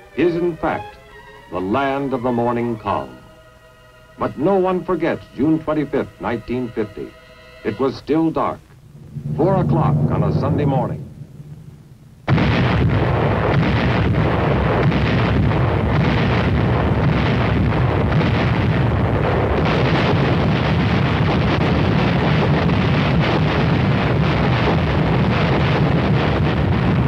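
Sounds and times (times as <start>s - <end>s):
artillery barrage rumble: 8.8s - 27.0s.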